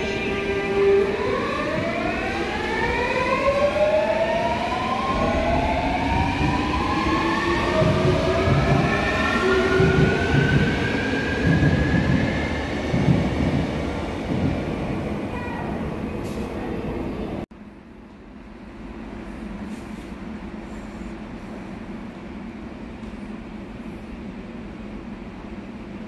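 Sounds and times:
electric train inverter whine: 0.0 - 13.4
train rumble: 0.0 - 26.0.

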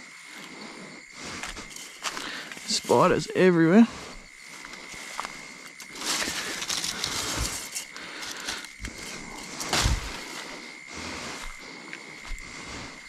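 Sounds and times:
dry leaves rustling underfoot: 1.2 - 3.4, 4.1 - 10.8.

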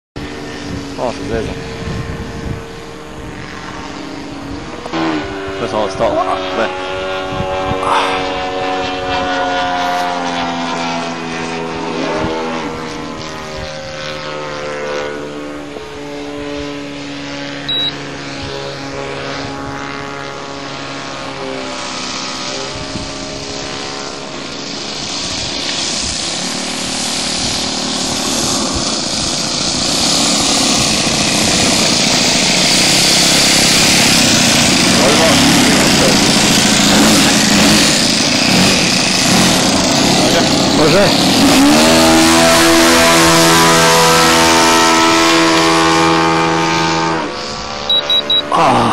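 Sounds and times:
model airplane engine: 0.2 - 48.9
rushing noise: 7.7 - 8.6.

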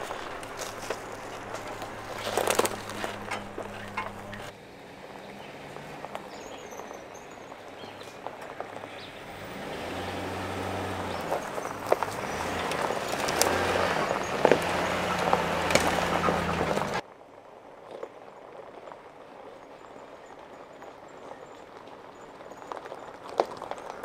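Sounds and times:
pickup truck engine hum: 0.0 - 17.0
tyres crackling over leaves and twigs: 0.0 - 24.0.

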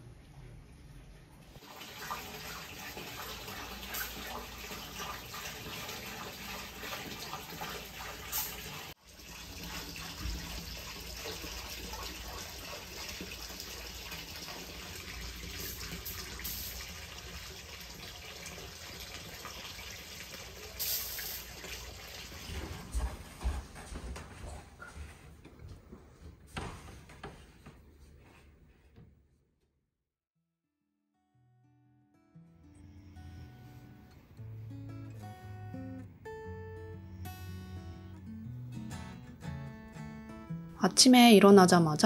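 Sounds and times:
water pouring into bath: 1.6 - 23.0.

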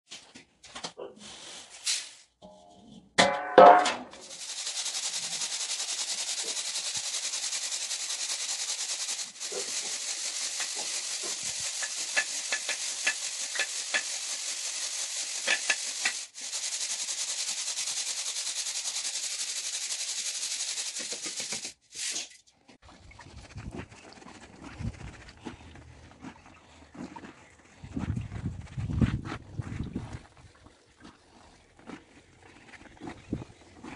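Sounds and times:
beans rattling in steel sieve: 4.1 - 22.2.

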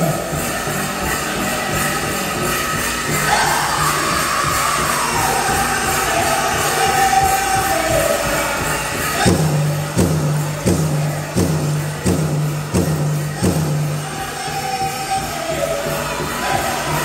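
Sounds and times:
bells jingling: 0.0 - 17.0
chorus singing: 0.0 - 17.0
large drum beats: 0.0 - 17.0.

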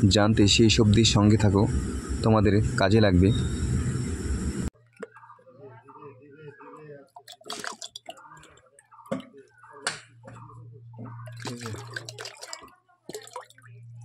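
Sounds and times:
low steady hum: 0.0 - 4.7
water splashing: 7.1 - 9.4, 11.2 - 13.8
water plops and drips: 7.1 - 10.0, 11.2 - 13.7
bottle gurgling in water: 7.2 - 8.2, 11.2 - 13.6.

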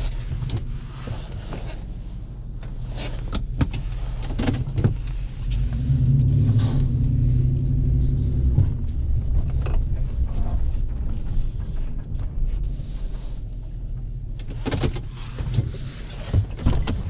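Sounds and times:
road noise: 0.0 - 17.0
truck engine: 2.4 - 16.2
clicks and knocks in cab: 2.7 - 5.6, 8.4 - 17.0.

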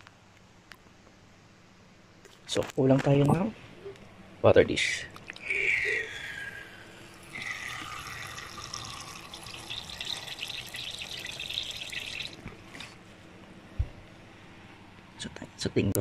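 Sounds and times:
water trickling into a dish: 5.3 - 12.4.

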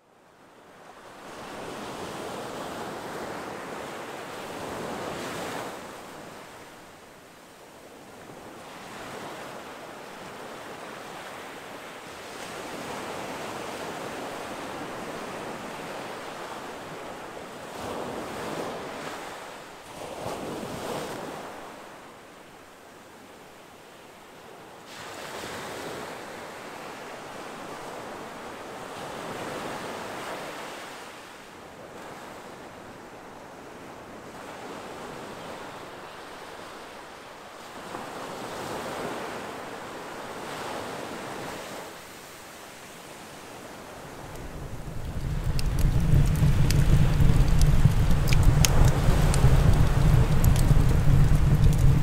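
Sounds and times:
waves breaking on shore: 0.8 - 22.3, 24.8 - 52.0.

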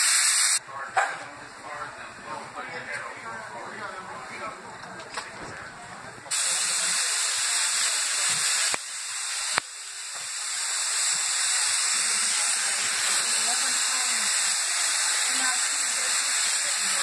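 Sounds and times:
steam locomotive hissing steam: 0.0 - 0.6, 6.3 - 17.0.

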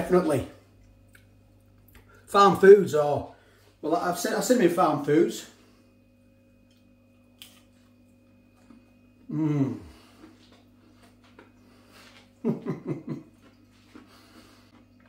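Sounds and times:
man humming with mouth full: 9.2 - 10.1.

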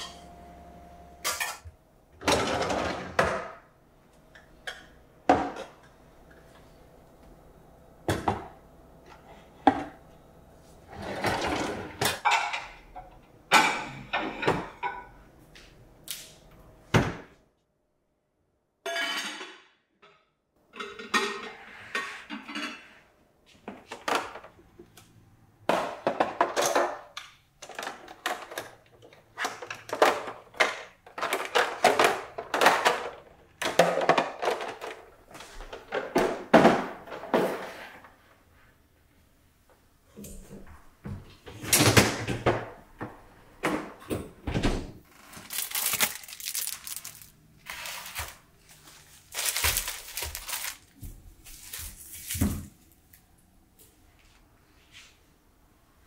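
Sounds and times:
baking dishes moved on shelves: 10.8 - 15.2
pots and lids clinking: 18.9 - 19.6.

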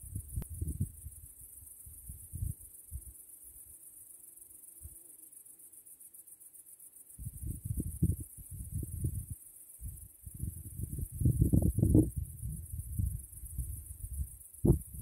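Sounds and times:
wind buffeting microphone: 0.0 - 1.0, 7.2 - 15.0
insects chirring: 0.0 - 15.0.

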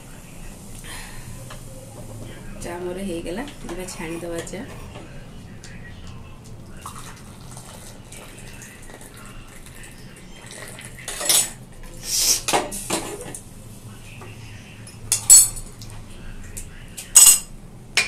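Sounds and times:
tea pouring into cup: 4.8 - 12.0
saucepan and strainer clanking: 15.1 - 15.7, 17.1 - 18.0.

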